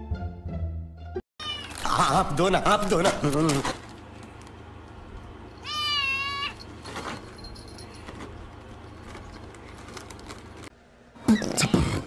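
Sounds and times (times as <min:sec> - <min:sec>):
cat meowing: 0:01.4 - 0:01.8, 0:05.6 - 0:06.6.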